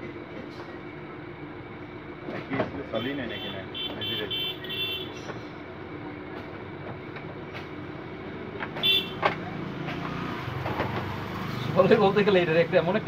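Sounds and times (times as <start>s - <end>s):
background traffic noise: 0.0s - 13.0s.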